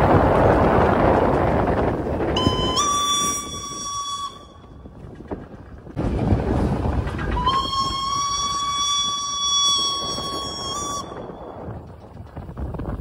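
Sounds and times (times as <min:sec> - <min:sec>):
train running noise: 0:00.0 - 0:13.0
steam whistle blasts: 0:02.4 - 0:04.7, 0:07.4 - 0:11.4.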